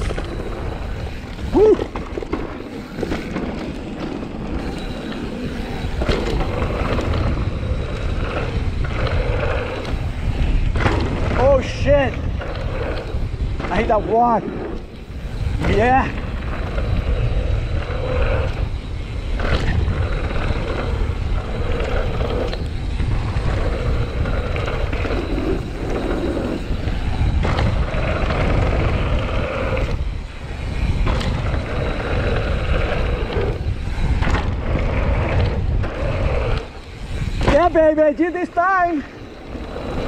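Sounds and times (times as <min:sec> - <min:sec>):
bike tyres rolling on dirt: 0:00.0 - 0:40.0
wind rumbling on microphone: 0:00.0 - 0:40.0
bike knocking over bumps: 0:10.7 - 0:11.8.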